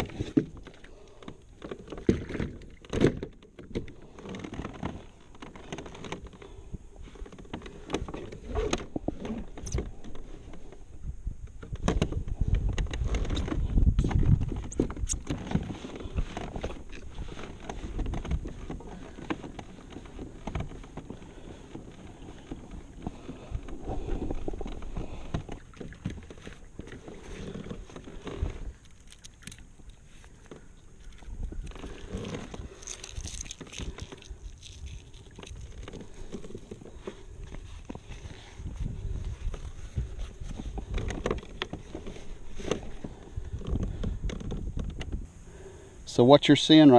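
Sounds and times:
wind buffeting microphone: 0:10.8 - 0:18.9, 0:36.9 - 0:45.3.

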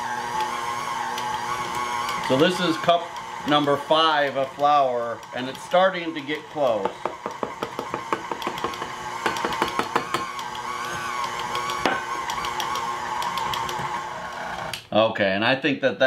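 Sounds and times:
stand mixer motor whine: 0:00.0 - 0:14.8
dough knocking against bowl: 0:06.8 - 0:10.3.

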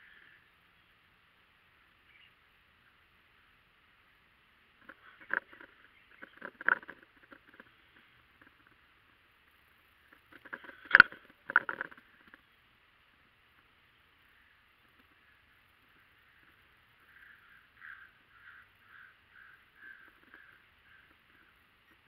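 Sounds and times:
rustles clicks and knocks of camera: 0:04.8 - 0:08.8, 0:10.1 - 0:12.5.

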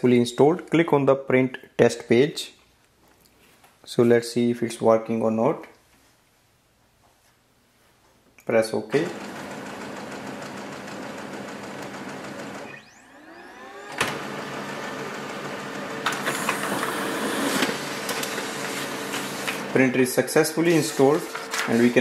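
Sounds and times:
printer humming with held tone: 0:09.0 - 0:22.0
printer mechanical whir: 0:09.0 - 0:22.0
printer click: 0:13.8 - 0:14.4, 0:15.9 - 0:19.8, 0:20.6 - 0:22.0.

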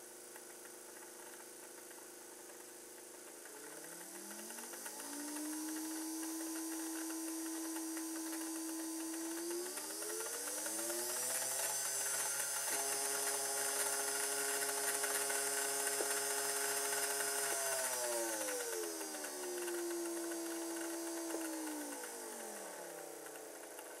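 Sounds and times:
electric motor whine: 0:00.9 - 0:24.0.

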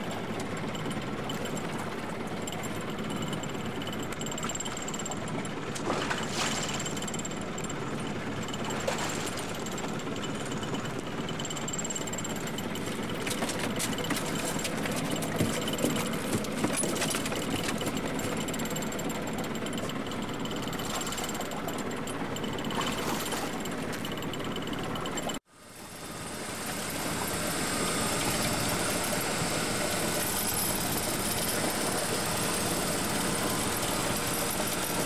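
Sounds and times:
boat engine and machinery: 0:00.0 - 0:35.0
knocks and clatters: 0:12.8 - 0:18.6.

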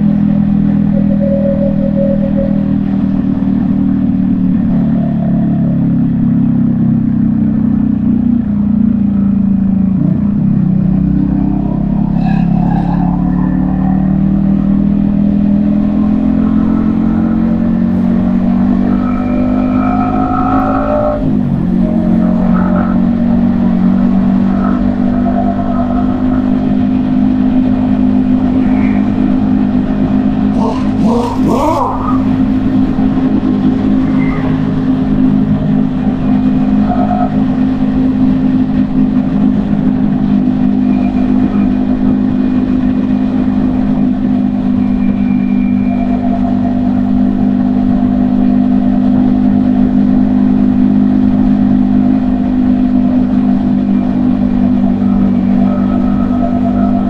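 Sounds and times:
motorcycle engine running: 0:00.0 - 0:12.1.

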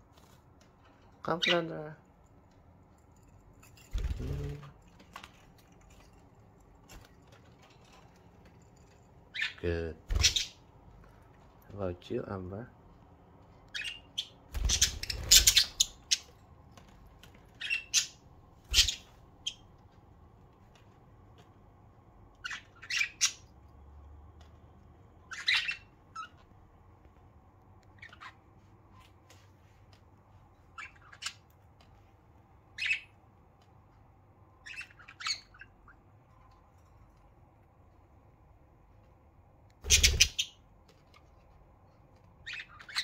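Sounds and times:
budgerigars squawking and chirping: 0:13.8 - 0:16.3, 0:17.6 - 0:19.6, 0:22.4 - 0:23.4, 0:25.3 - 0:26.4, 0:32.8 - 0:33.1, 0:39.9 - 0:40.5.

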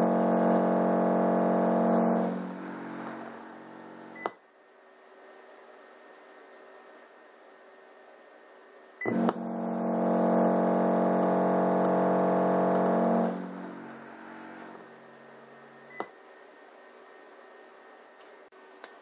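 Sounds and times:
subwoofer buzzing drone: 0:00.0 - 0:04.3, 0:09.0 - 0:16.0
speaker pop: 0:09.1 - 0:09.5
click: 0:18.8 - 0:19.0.

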